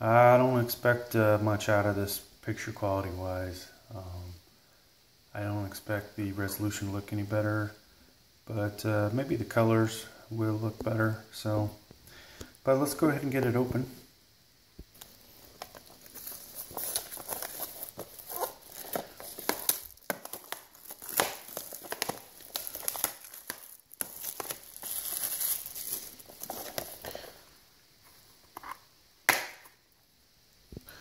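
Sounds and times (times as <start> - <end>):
plastic wrap crinkling: 14.8 - 27.4.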